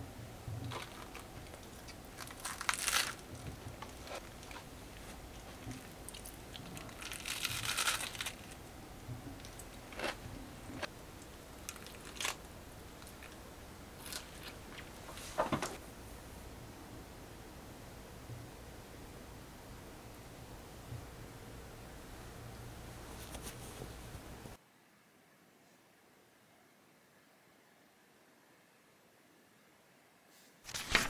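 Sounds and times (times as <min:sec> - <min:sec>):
crinkling: 0:00.4 - 0:15.8, 0:30.7 - 0:31.0.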